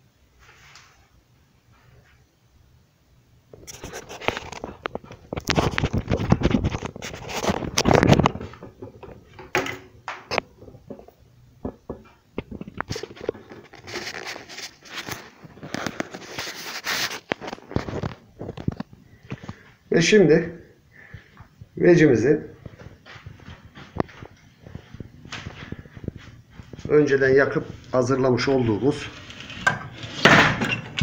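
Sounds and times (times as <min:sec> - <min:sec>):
aluminium foil crinkling: 0:12.6 - 0:18.9.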